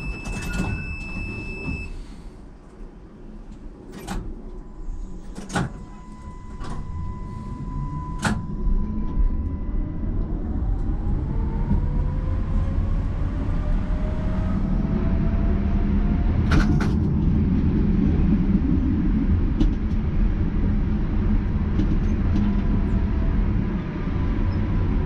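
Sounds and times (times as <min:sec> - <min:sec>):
tram doors clacking: 0:00.0 - 0:09.2
steady warning tone: 0:04.5 - 0:15.2.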